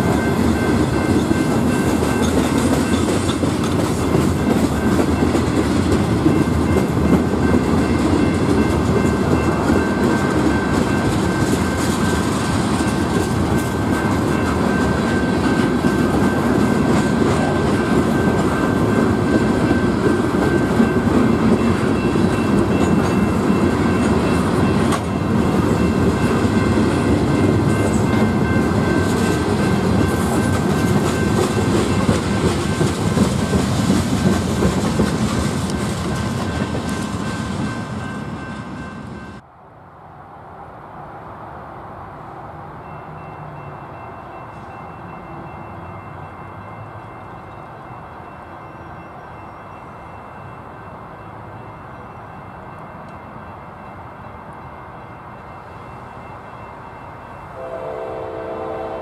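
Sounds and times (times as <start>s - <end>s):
wheels clacking over rail joints: 0.0s - 39.2s
freight train rolling past: 0.0s - 59.0s.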